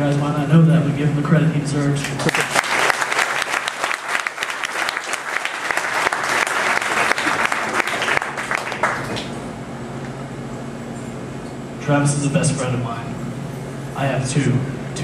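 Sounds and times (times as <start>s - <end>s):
audience applauding: 2.1s - 9.4s.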